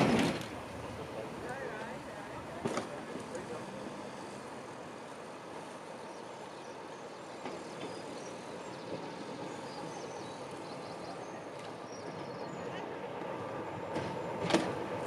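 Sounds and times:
diesel locomotive engine rumble: 0.0 - 15.0
birds chirping: 3.4 - 13.0.

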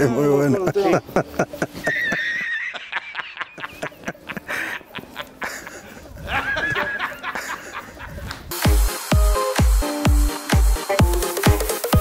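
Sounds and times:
man laughing hard: 0.5 - 8.5.

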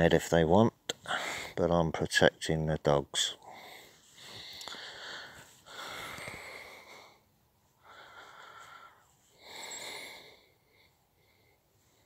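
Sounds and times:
person breathing: 1.0 - 1.6, 3.4 - 12.0.

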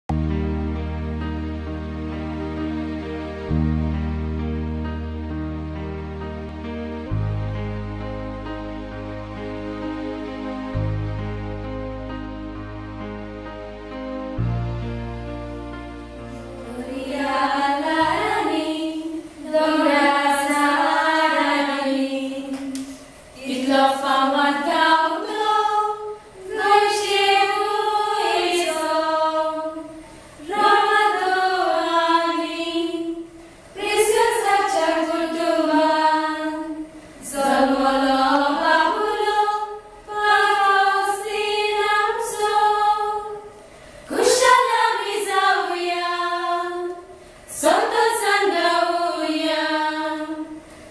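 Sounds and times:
women's choir singing unaccompanied: 16.4 - 50.7.

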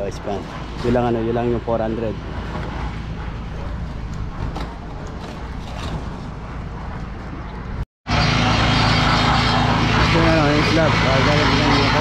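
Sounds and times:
concrete mixer engine running: 8.1 - 12.0.

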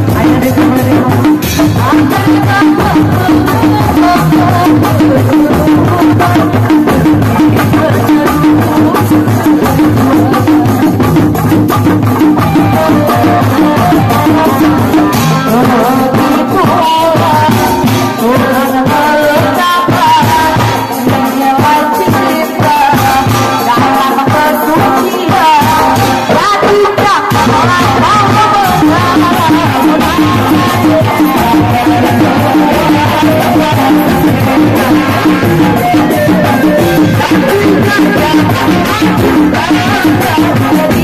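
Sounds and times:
rattling percussion: 0.0 - 41.0
dense drumming: 25.9 - 41.0.

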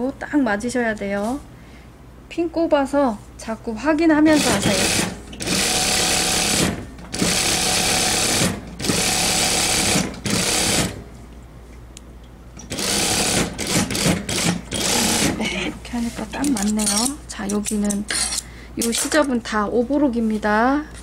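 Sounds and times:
industrial sewing machine stitching: 4.3 - 11.0, 12.7 - 15.4.

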